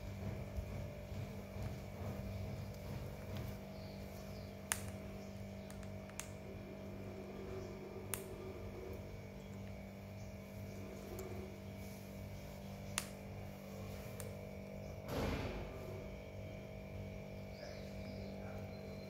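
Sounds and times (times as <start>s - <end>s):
low background hum: 0.0s - 19.0s.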